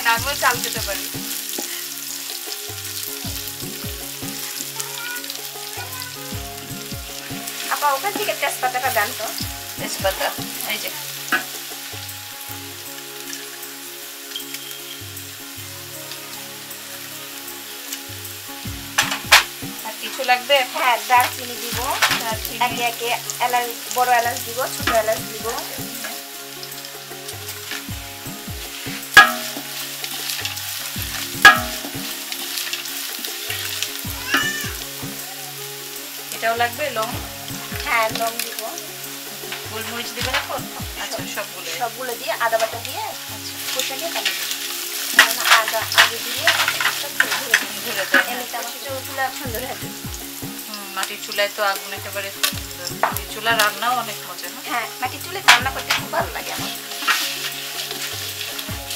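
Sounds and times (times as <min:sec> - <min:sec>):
oil sizzling in a pot: 0:00.0 - 0:58.9
spatula knocking on metal pot: 0:21.2 - 0:22.8, 0:29.0 - 0:29.7, 0:31.0 - 0:32.1, 0:40.2 - 0:41.0, 0:52.5 - 0:53.6, 0:55.4 - 0:56.7
wooden spatula scraping a pot: 0:42.6 - 0:48.6, 0:55.5 - 0:58.7.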